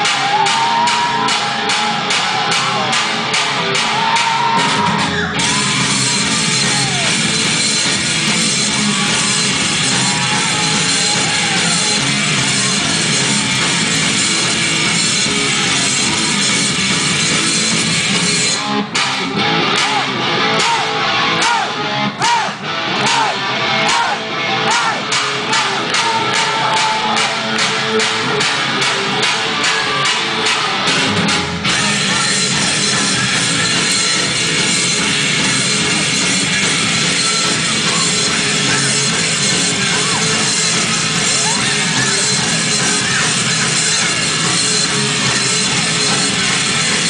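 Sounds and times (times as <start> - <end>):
shouted vocals: 0.0 - 7.4, 8.4 - 14.4, 19.6 - 30.9
pounding drum beat: 0.0 - 23.3, 23.9 - 47.0
distorted electric guitar: 0.0 - 47.0.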